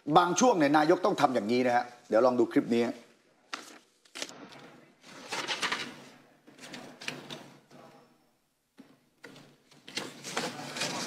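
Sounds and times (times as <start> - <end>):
paper rustling: 3.5 - 7.5, 9.7 - 11.0.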